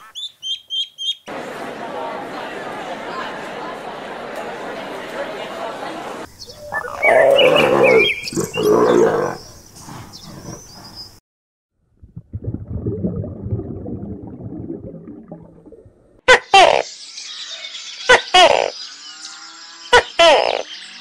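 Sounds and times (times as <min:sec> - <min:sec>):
tortoise calling: 0:06.4 - 0:11.0
low rumbling noise: 0:12.0 - 0:16.2.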